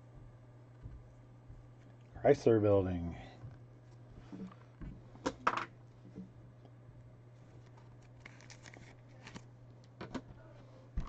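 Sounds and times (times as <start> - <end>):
steady low hum: 0.0 - 11.0
trading cards rustling: 7.6 - 9.5.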